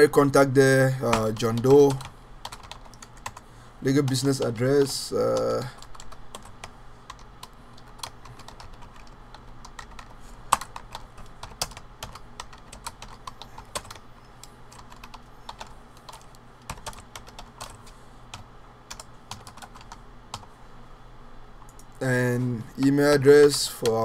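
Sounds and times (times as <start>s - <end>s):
typing on computer keyboard: 1.1s - 3.4s, 5.3s - 14.0s, 14.7s - 20.5s.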